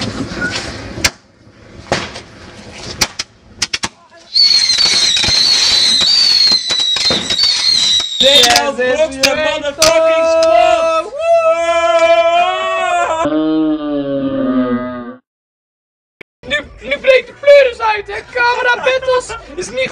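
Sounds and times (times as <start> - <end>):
firework pops and crackles: 2.9 - 10.5
firework shrieking whistle: 4.3 - 8.6
voices: 8.1 - 12.2.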